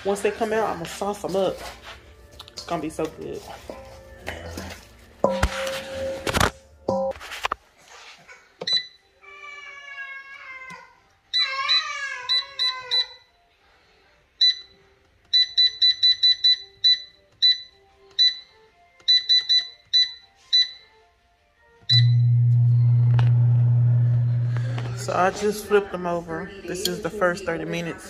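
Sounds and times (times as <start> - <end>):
short high control panel beeps: 21.9 - 24.5.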